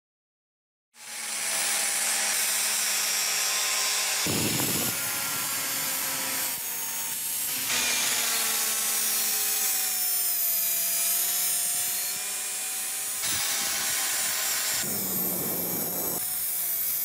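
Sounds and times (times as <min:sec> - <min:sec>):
angle grinder grinding metal: 0:01.0 - 0:17.0.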